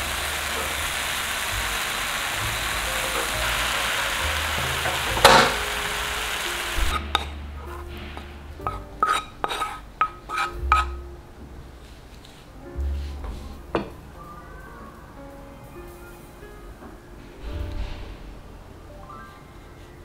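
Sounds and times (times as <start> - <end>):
banana sizzling in butter: 0.0 - 7.0
wooden spoon scraping pan: 7.1 - 11.0.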